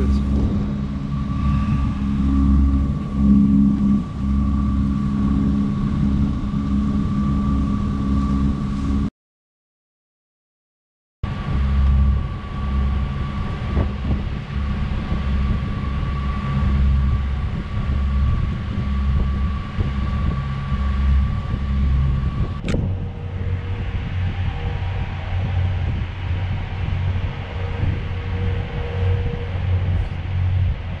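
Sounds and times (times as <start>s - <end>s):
boat engine low pulsing drone: 0.0s - 9.1s, 11.2s - 31.0s
thin steady whine: 0.0s - 9.1s, 11.3s - 31.0s.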